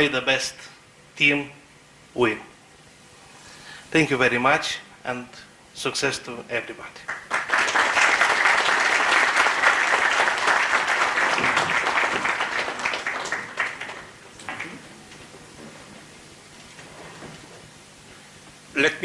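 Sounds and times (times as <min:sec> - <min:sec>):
audience applause: 0:07.1 - 0:15.0.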